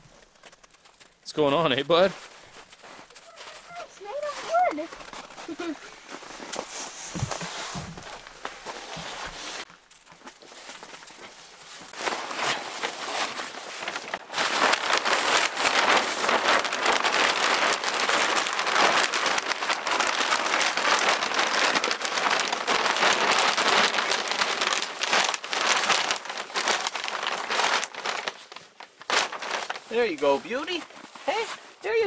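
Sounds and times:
material rubbing near microphone: 0:03.1 - 0:09.7.

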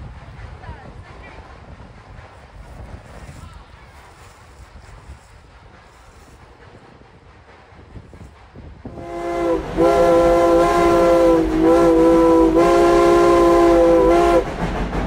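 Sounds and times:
low train rumble: 0:00.0 - 0:15.0
steam locomotive whistle: 0:08.9 - 0:14.5.

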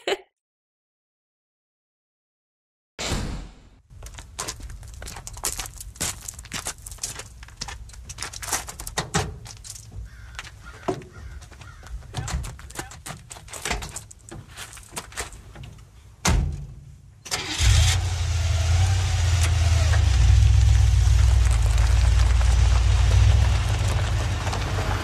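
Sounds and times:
car engine starting and running: 0:17.3 - 0:25.0.

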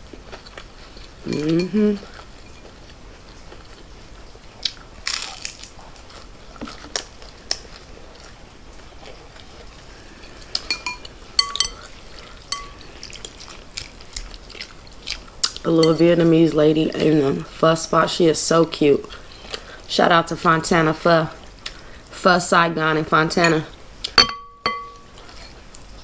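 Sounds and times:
crunchy bites and chewing: 0:04.6 - 0:07.9
utensil clinking against glass bowl: 0:10.2 - 0:11.9, 0:12.5 - 0:12.8, 0:24.2 - 0:25.5.

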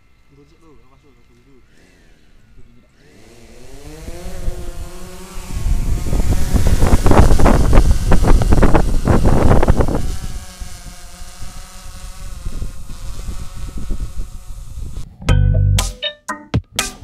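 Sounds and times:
drone propellers whining: 0:01.8 - 0:10.8
wind buffeting microphone: 0:03.9 - 0:11.5, 0:12.2 - 0:15.1.

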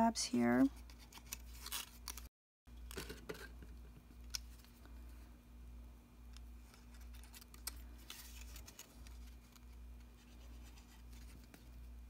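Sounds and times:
steady low hum: 0:03.2 - 0:12.0.

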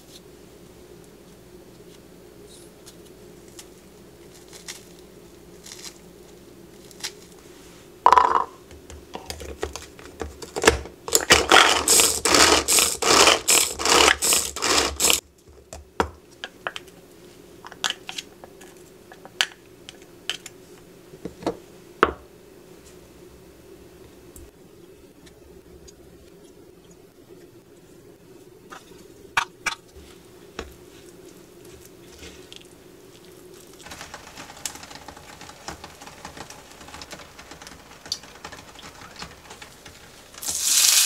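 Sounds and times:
food chopper whirring rattle: 0:11.1 - 0:15.2.

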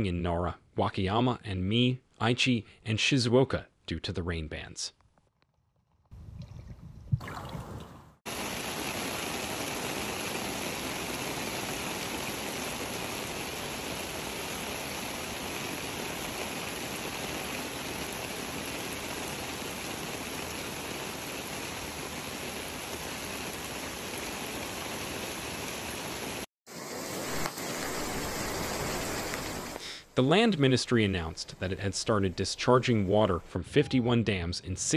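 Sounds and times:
floodwater rushing: 0:07.2 - 0:29.8.

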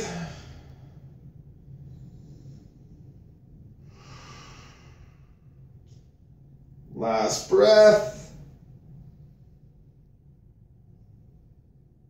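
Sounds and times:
person breathing: 0:00.0 - 0:06.0
low steady hum: 0:00.0 - 0:12.0.

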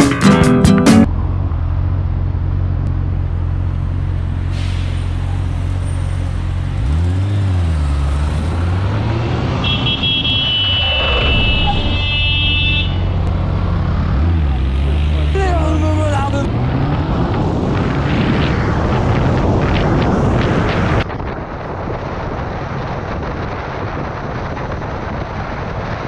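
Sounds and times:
guitar strumming: 0:00.0 - 0:01.1
city traffic: 0:00.0 - 0:26.0
motorcycle engine idling and revving: 0:00.9 - 0:26.0.

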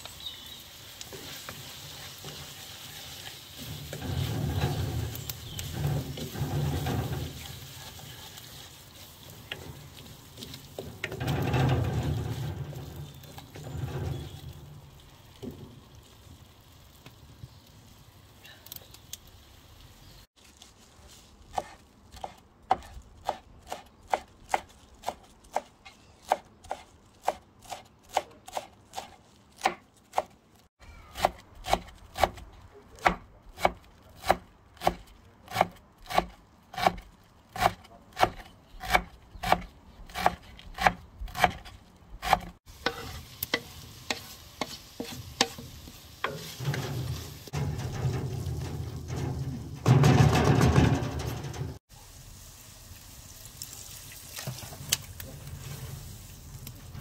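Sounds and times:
wooden spoon stirring in a pan: 0:00.0 - 0:17.6, 0:42.2 - 0:49.0.

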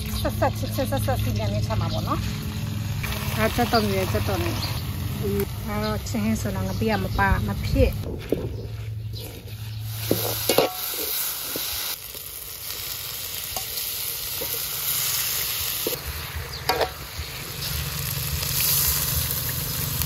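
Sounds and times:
food sizzling in hot oil: 0:01.6 - 0:07.9, 0:09.2 - 0:20.0
metal spatula scraping a wok: 0:08.6 - 0:11.9.

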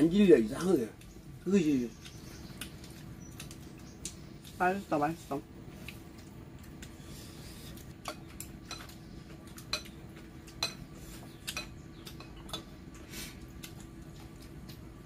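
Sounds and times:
faint steady hum: 0:00.0 - 0:15.0
chopsticks clicking on plates: 0:08.0 - 0:12.8.

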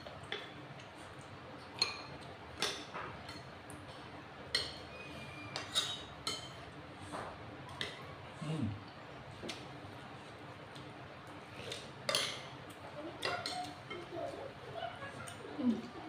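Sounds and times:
cutlery clinking on plates: 0:01.6 - 0:08.0, 0:11.6 - 0:14.1.

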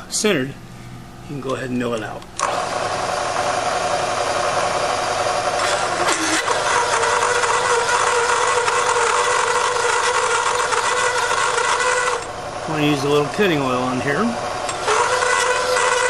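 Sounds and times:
hole saw cutting metal plate: 0:05.5 - 0:12.3, 0:14.6 - 0:16.0.

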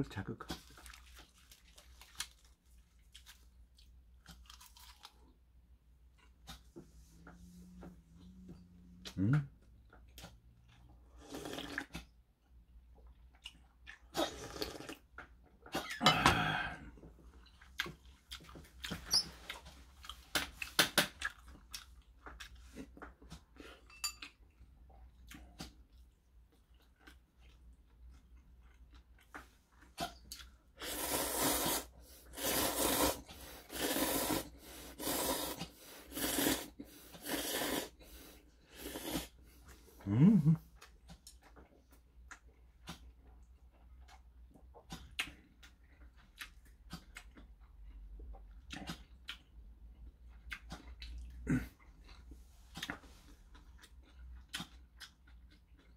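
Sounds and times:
chewing: 0:00.5 - 0:05.4, 0:13.0 - 0:15.9, 0:17.3 - 0:30.6, 0:40.6 - 0:55.9
man slurping noodles: 0:11.2 - 0:12.0, 0:14.2 - 0:15.0, 0:30.8 - 0:39.4.

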